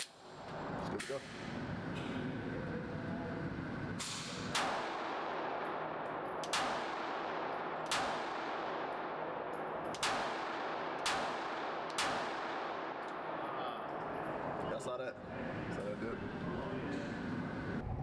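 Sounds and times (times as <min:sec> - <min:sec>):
pistol shots with echo: 0:04.0 - 0:14.4.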